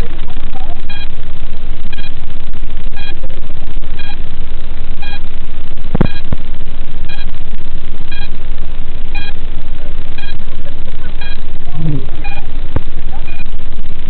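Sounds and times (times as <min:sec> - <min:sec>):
loud static hiss: 0:00.0 - 0:14.0
short electronic beeps: 0:00.9 - 0:01.1, 0:01.9 - 0:02.2, 0:03.0 - 0:03.2, 0:04.0 - 0:04.2, 0:05.0 - 0:05.3, 0:06.0 - 0:06.3, 0:07.1 - 0:07.3, 0:08.1 - 0:08.4, 0:09.2 - 0:09.4, 0:10.2 - 0:10.4, 0:11.2 - 0:12.5, 0:13.2 - 0:13.5.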